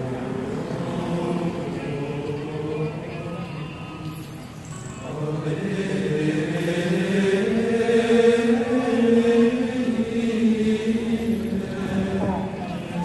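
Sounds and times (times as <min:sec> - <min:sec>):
slow chant-like vocal music: 0:00.0 - 0:13.0.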